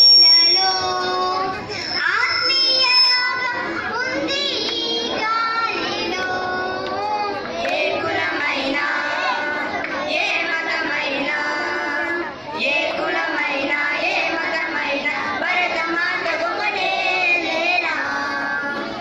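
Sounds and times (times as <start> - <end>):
children singing together: 0.0 - 19.0.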